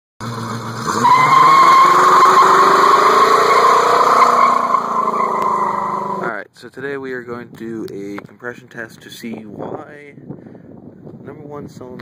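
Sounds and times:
car engine revving: 0.2s - 6.3s
tires squealing: 0.3s - 6.3s.

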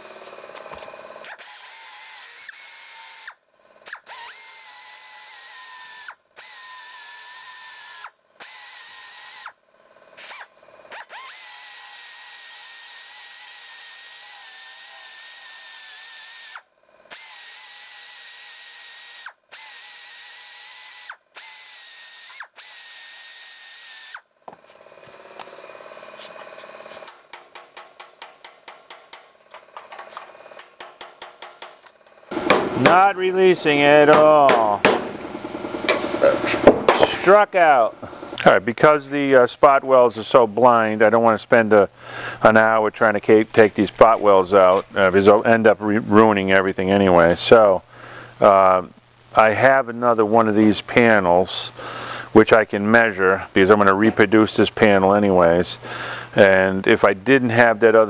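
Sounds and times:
belt sander grinding steel: 0.0s - 31.2s, 31.8s - 46.3s.

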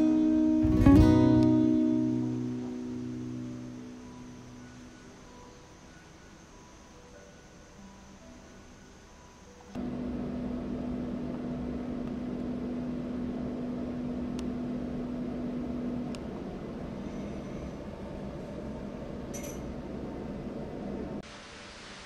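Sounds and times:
low mechanical hum: 0.0s - 22.0s
held low tone: 9.8s - 21.2s.

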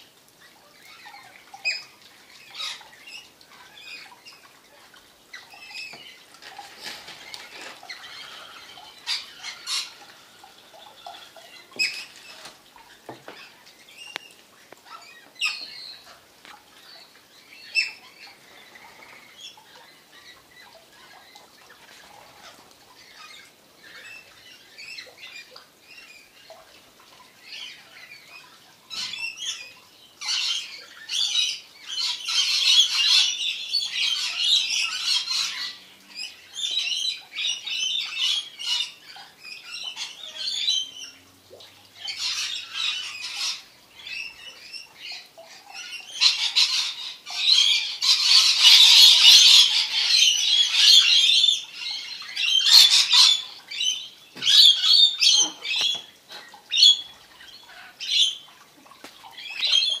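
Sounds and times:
lorikeets screeching: 45.8s - 56.0s.

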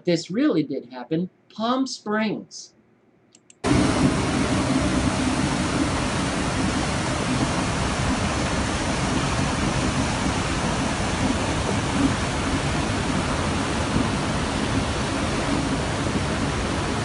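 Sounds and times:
floodwater rushing: 3.6s - 17.0s.

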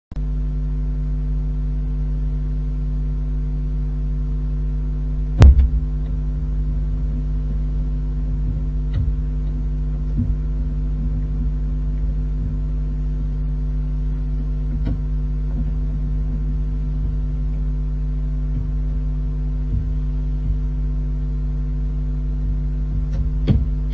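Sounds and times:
electrical mains hum: 0.2s - 23.9s
loud thump: 5.2s - 7.1s, 22.9s - 23.9s
faint knocks: 23.0s - 23.9s.

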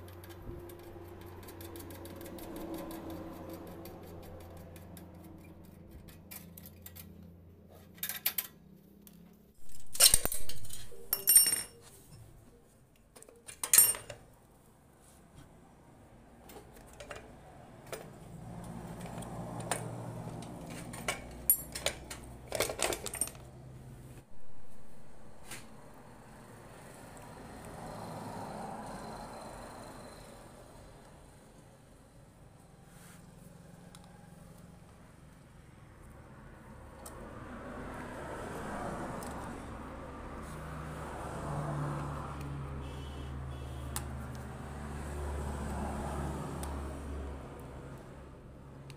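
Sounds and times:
spanners and metal parts clinking: 0.0s - 8.7s, 9.6s - 12.4s, 13.1s - 14.3s, 16.5s - 18.1s, 19.0s - 23.5s.

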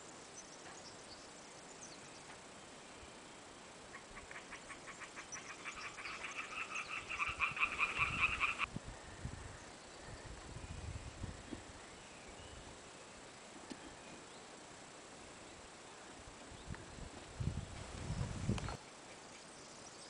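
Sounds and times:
frog croaking in pulses: 3.9s - 8.7s.

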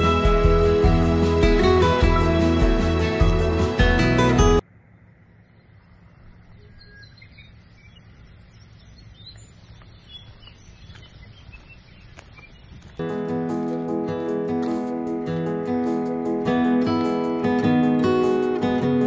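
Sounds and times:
plucked guitar music: 0.0s - 4.6s, 13.0s - 19.0s
bird chirps: 4.8s - 13.0s.

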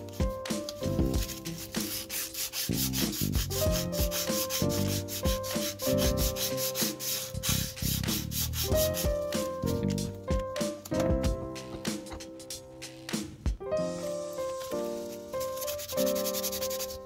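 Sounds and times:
sandpaper rubbing on metal: 1.2s - 9.8s, 14.9s - 17.0s.

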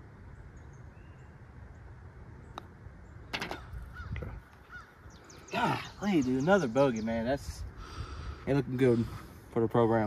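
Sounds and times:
low wind rumble: 0.0s - 10.0s
golf putter striking ball: 3.3s - 4.0s.

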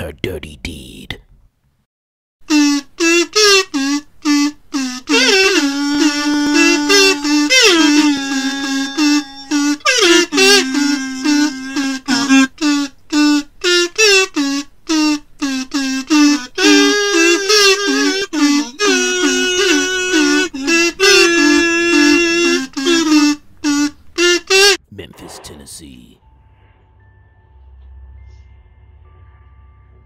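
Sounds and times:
choppy high lead melody: 2.5s - 12.6s, 15.7s - 23.8s.

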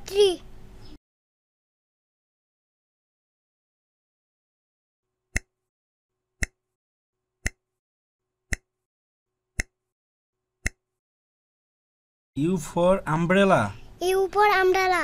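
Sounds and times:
timer ticking clicks: 5.3s - 5.7s, 6.4s - 6.8s, 7.4s - 7.8s, 8.5s - 8.9s, 9.6s - 9.9s, 10.6s - 11.0s.

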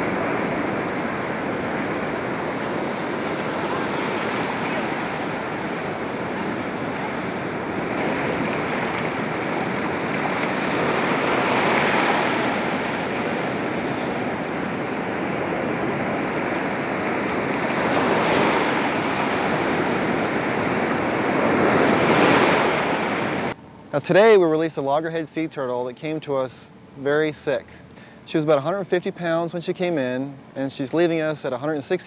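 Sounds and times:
ocean surf washing up beach: 0.0s - 23.6s.

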